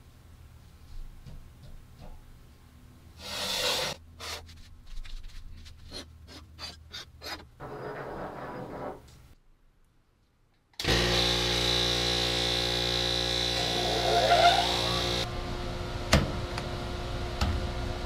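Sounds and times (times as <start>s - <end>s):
metal scraping on wood: 5.6s - 9.1s.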